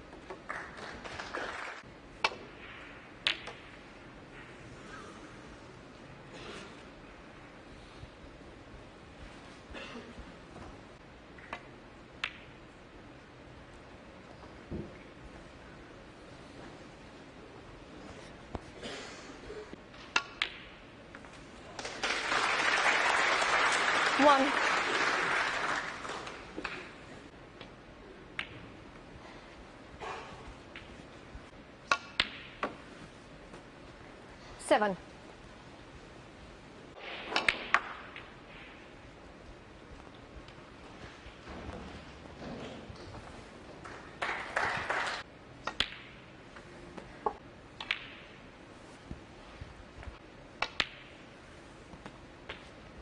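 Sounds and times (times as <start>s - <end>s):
snooker balls clicking: 2.2s - 3.8s, 11.3s - 12.6s, 31.8s - 33.6s, 45.6s - 48.5s, 50.0s - 51.3s.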